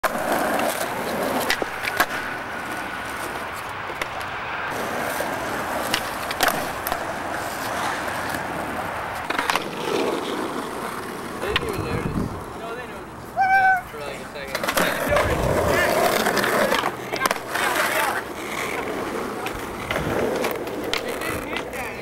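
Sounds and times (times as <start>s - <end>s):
skateboard wheels rolling on asphalt: 0.0s - 22.0s
skateboard knocks: 14.5s - 22.0s.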